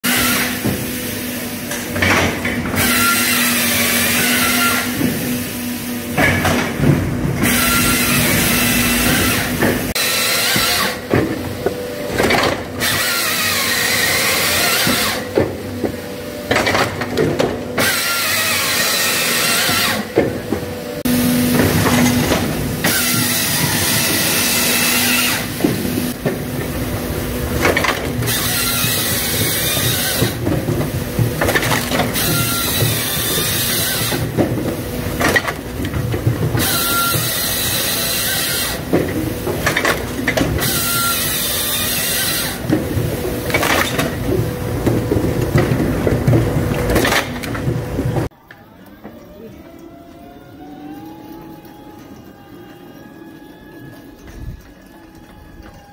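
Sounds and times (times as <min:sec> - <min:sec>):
machine drive hum: 0:00.1 - 0:55.9
saw chain cutting log: 0:02.7 - 0:05.2, 0:07.4 - 0:11.2, 0:12.2 - 0:15.3, 0:17.7 - 0:20.2, 0:21.5 - 0:26.2, 0:27.6 - 0:30.5, 0:31.4 - 0:34.3, 0:36.6 - 0:38.9, 0:39.8 - 0:42.7.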